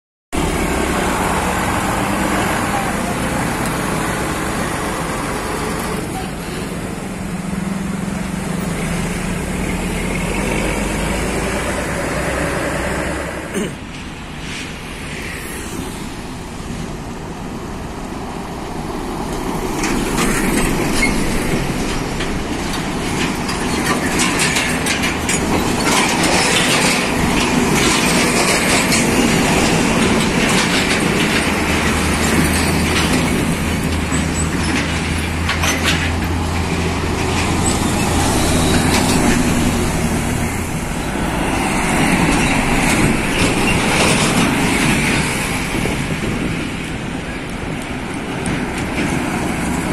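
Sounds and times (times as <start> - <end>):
tyres on tarmac: 0.3 - 49.9
motorbikes passing: 0.4 - 17.9
heavy trucks passing: 0.4 - 49.9
dense rattling clatter: 20.1 - 38.2.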